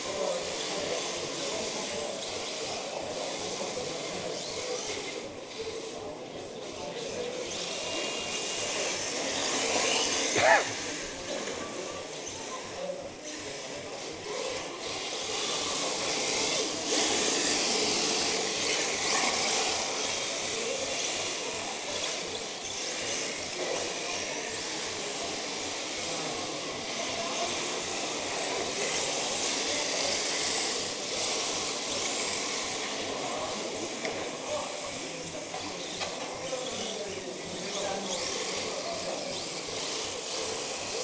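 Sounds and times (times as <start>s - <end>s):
hiss of rc car motors and tyres: 14.8s - 23.9s.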